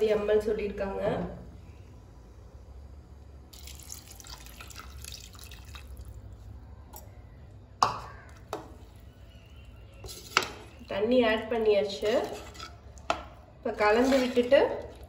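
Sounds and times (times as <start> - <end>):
water poured into pot: 3.5 - 6.2.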